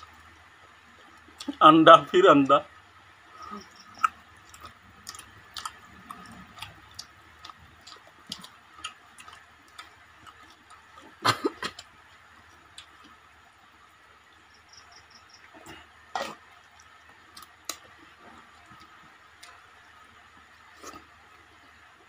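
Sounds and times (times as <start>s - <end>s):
clicks and smacks of eating: 4.0s - 13.2s, 16.2s - 19.6s.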